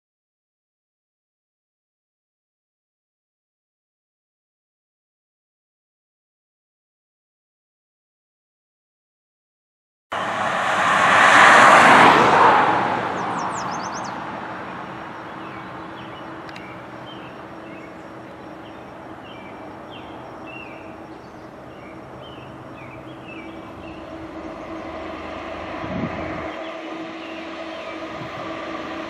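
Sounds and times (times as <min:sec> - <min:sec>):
diesel locomotive drone: 0:10.1 - 0:29.0
loud rushing sound: 0:10.1 - 0:29.0
bird chirps: 0:13.2 - 0:25.0, 0:25.9 - 0:28.3.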